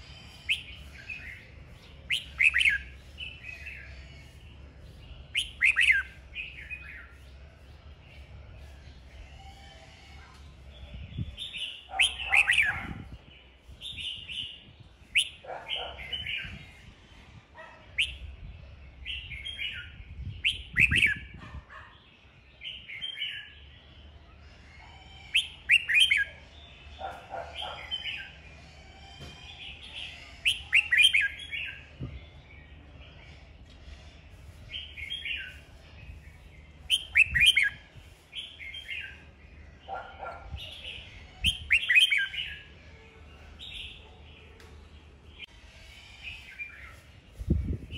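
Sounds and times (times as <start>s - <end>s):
bird chirping phrases: 0.0s - 47.9s.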